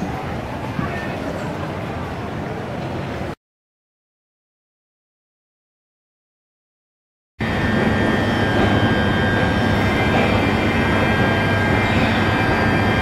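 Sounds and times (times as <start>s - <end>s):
high steady whine tones: 7.4s - 13.0s
train equipment drone: 7.4s - 13.0s.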